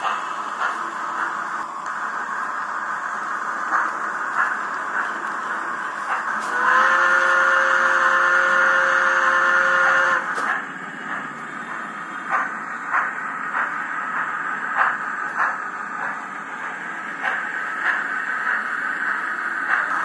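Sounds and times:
slow steam chuffs: 0.0s - 20.0s
steam whistle blast: 6.5s - 10.3s.

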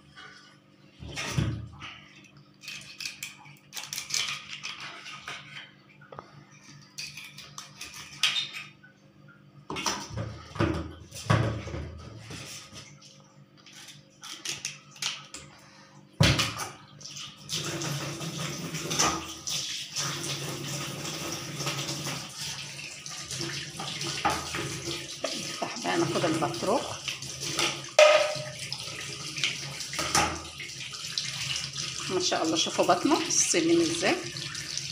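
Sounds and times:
water tap running into sink: 16.2s - 34.9s
fish knocking in metal sink: 28.0s - 28.6s.

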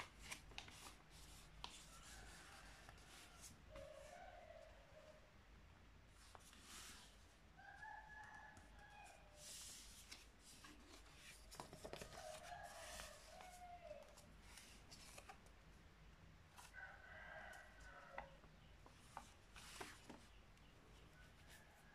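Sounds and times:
paper rustling: 0.0s - 4.0s, 9.4s - 15.5s, 18.9s - 20.3s.

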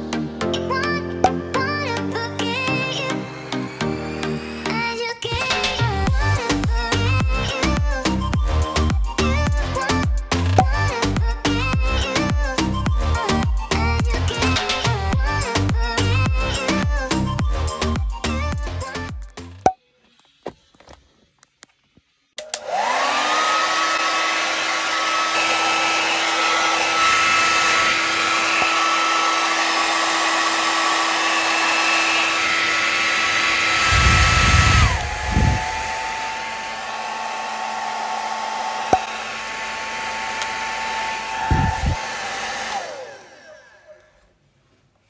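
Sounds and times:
hair dryer motor whining: 2.4s - 19.1s, 22.4s - 44.4s
rushing air: 33.4s - 37.0s, 41.4s - 42.2s
low rumbles: 33.8s - 36.0s.

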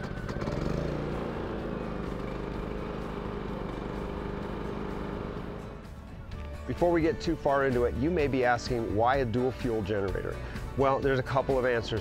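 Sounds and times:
generator engine running: 0.0s - 6.0s.

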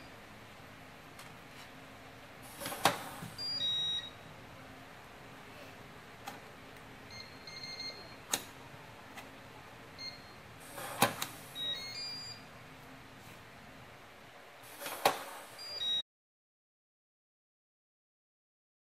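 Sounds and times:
electronic beeps: 3.4s - 4.2s, 11.5s - 12.5s, 15.6s - 16.0s.

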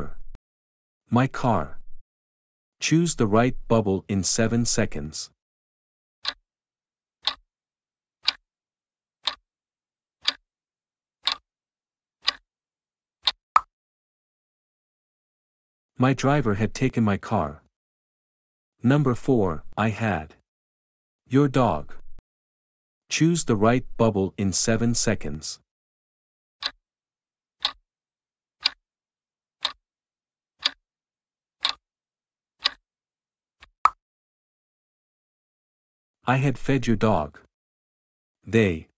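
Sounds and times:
clock ticks: 7.2s - 7.4s, 8.2s - 8.4s, 11.2s - 11.4s, 12.2s - 12.4s, 13.2s - 13.7s, 27.6s - 27.8s, 28.6s - 28.8s, 29.6s - 29.8s, 30.6s - 30.8s, 31.6s - 31.8s, 32.6s - 32.8s.

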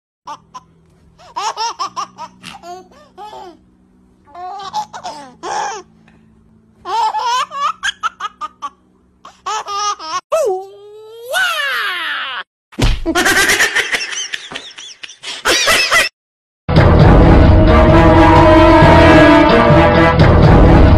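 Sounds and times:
high-pitched human laughter: 13.1s - 16.1s.

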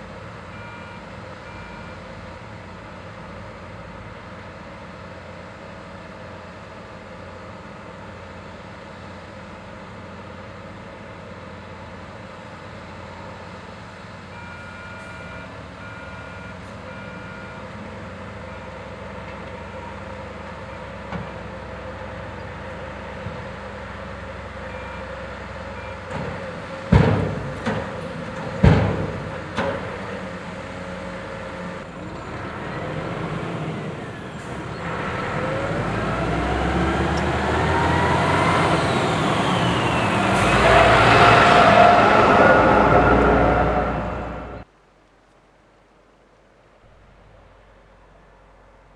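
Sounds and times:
short beeps: 0.5s - 2.0s, 14.4s - 17.6s, 24.7s - 25.1s
diesel truck engine running: 15.5s - 44.7s.

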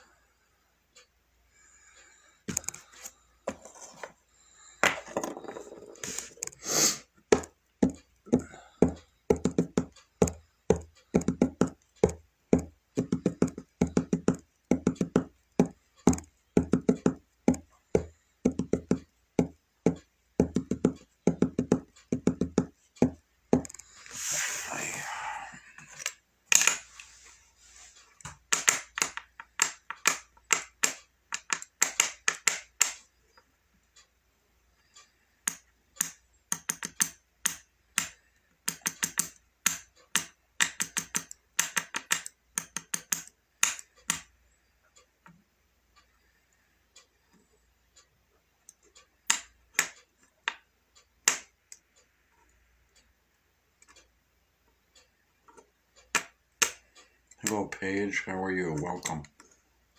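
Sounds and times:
fingertip taps on touchscreen: 7.3s - 23.8s.

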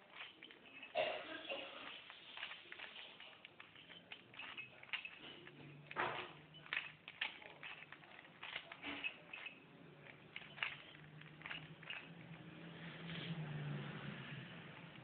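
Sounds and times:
plastic puzzle cube clicking: 1.8s - 12.4s.

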